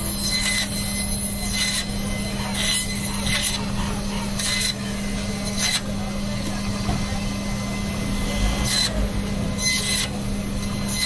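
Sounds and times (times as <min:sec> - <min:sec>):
saw blade scraping through fish: 0:00.0 - 0:05.9, 0:09.6 - 0:11.0
band saw humming: 0:00.0 - 0:11.0.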